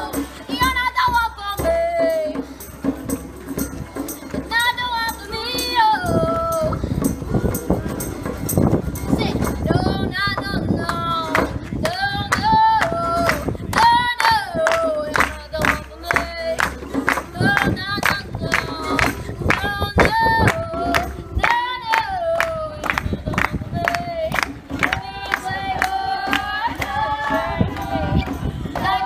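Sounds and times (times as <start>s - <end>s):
clapped beat: 10.8s - 29.0s
group singing in unison: 12.4s - 29.0s.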